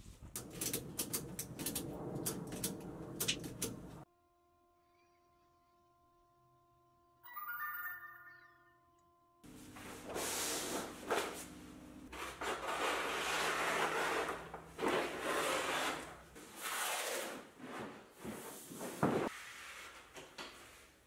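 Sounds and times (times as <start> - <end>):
paper rustling across floor: 9.7 - 21.0
paper ripping: 12.1 - 17.4.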